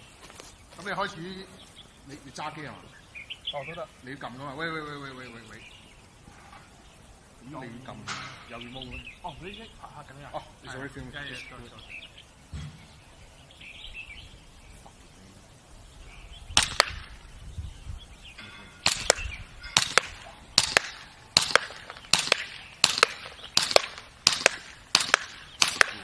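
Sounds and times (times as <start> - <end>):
wind rumble on microphone: 15.8 - 19.8
airsoft pistol shots: 16.6 - 17.2, 18.8 - 26.0.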